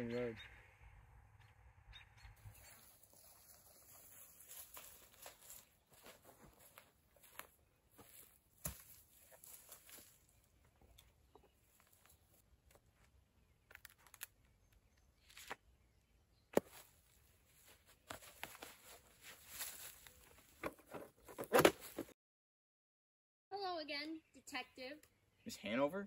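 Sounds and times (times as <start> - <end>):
handling rustles: 17.6 - 22.1.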